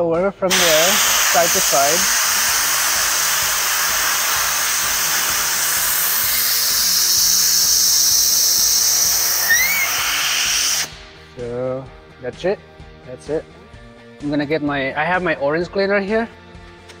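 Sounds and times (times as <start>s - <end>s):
air blow gun hissing: 0.5s - 11.2s.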